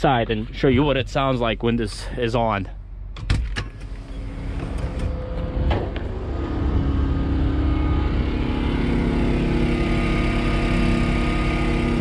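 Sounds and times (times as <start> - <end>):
door clicks and knock: 3.2 - 6.1
generator humming: 3.8 - 12.0.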